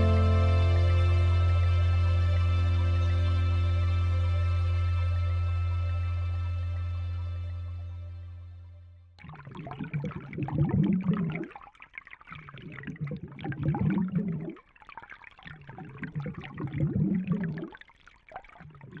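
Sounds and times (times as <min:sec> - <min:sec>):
water pouring and trickling: 0:09.2 - 0:19.0.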